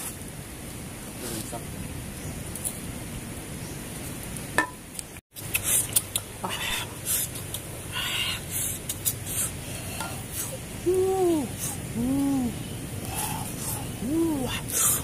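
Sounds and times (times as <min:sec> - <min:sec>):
leaves rustling and crinkling: 0:00.0 - 0:05.2.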